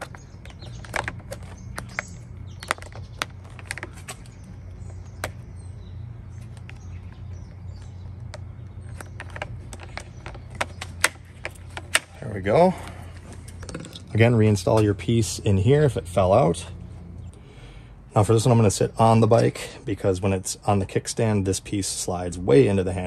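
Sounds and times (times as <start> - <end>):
foam cover clicking and squeaking: 0.0 - 5.5
steady low hum: 0.0 - 23.0.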